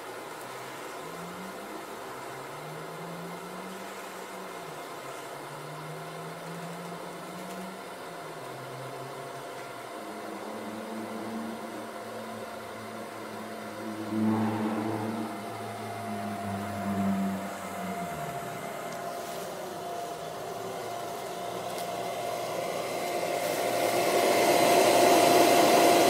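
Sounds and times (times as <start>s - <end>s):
electric blower whirring: 13.7s - 26.0s.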